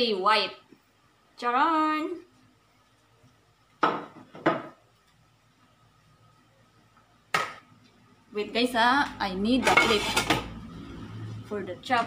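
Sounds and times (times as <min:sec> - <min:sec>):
plates clacking on countertop: 0:03.8 - 0:04.8.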